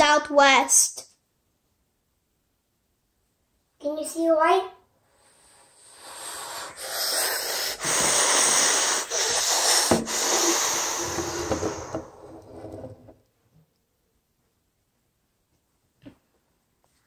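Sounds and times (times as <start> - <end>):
child making jet whooshing noise: 6.0 - 11.9.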